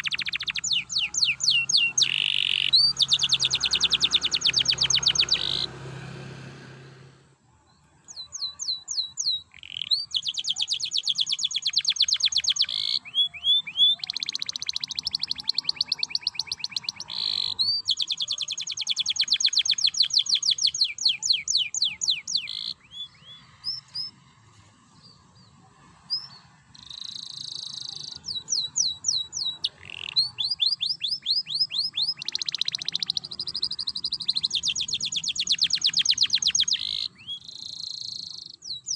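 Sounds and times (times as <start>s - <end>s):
canary trilling song: 0.0s - 6.8s, 7.7s - 38.9s.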